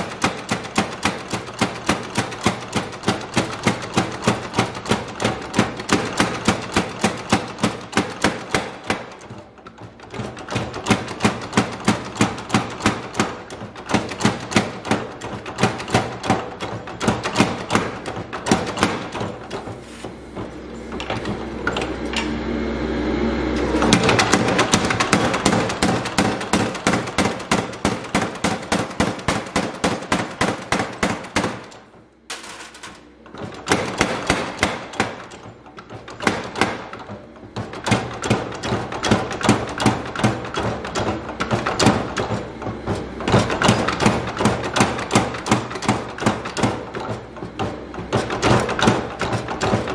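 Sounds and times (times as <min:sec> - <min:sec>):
power hammer striking hot steel: 0:00.0 - 0:09.4, 0:10.1 - 0:22.4, 0:23.5 - 0:32.0, 0:33.3 - 0:49.9
steady hum: 0:16.0 - 0:40.1.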